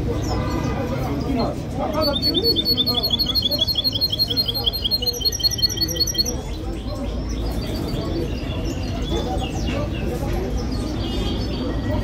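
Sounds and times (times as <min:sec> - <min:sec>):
songbird chirping: 0:00.1 - 0:08.9.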